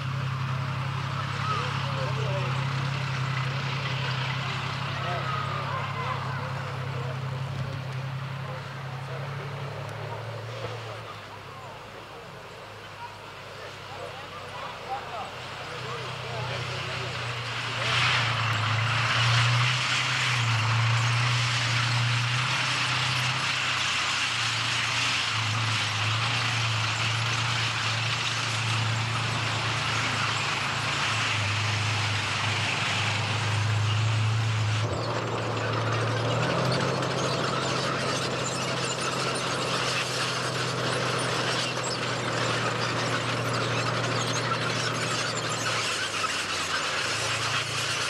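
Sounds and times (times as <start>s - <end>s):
tank engine droning: 0.0s - 48.0s
tank tracks clanking and squealing: 14.3s - 48.0s.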